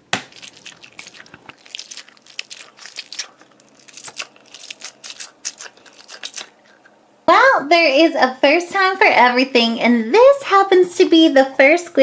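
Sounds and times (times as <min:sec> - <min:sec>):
squishy toy crackling: 0:00.2 - 0:06.9.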